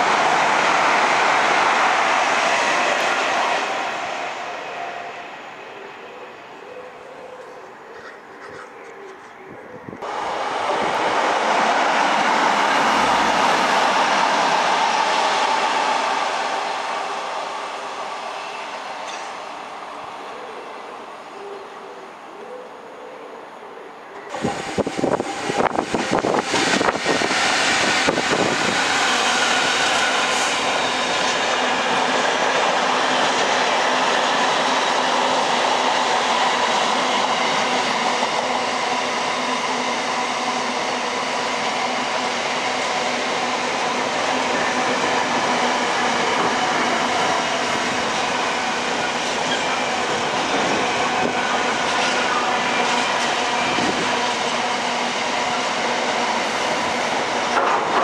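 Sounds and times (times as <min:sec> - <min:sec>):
train wheels rushing on rail: 0:00.0 - 0:06.6, 0:09.9 - 0:21.2, 0:24.2 - 0:58.0
train clattering: 0:18.9 - 0:19.6, 0:56.0 - 0:58.0.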